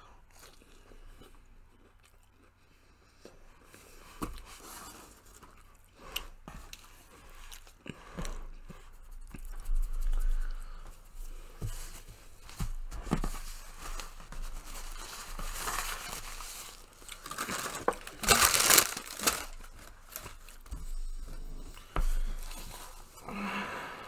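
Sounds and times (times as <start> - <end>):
quiet chewing: 0.3 - 10.8
paper rustling: 11.6 - 20.9.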